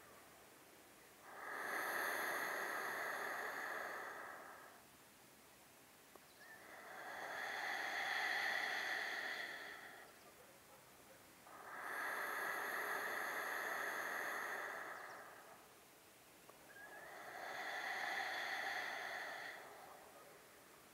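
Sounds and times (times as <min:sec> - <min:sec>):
person breathing deeply: 0:01.2 - 0:04.9, 0:06.4 - 0:10.3, 0:11.4 - 0:15.8, 0:16.6 - 0:20.9.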